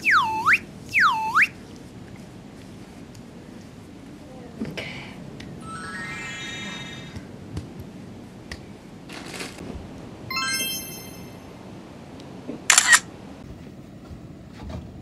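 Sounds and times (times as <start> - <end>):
bright glittering chime: 5.6 - 7.2, 10.3 - 11.5
camera shutter double click: 12.7 - 13.1.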